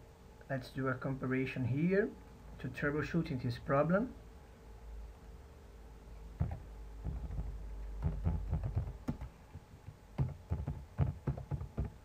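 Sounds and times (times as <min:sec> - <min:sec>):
computer keyboard typing: 0:06.4 - 0:09.3, 0:10.2 - 0:12.0.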